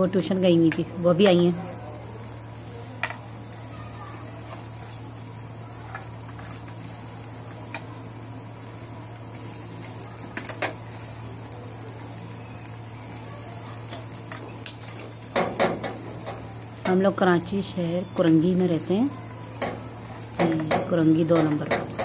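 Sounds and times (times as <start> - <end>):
meat sizzling on a grill: 0.0 - 22.0
metal skewers clicking together: 19.5 - 22.0.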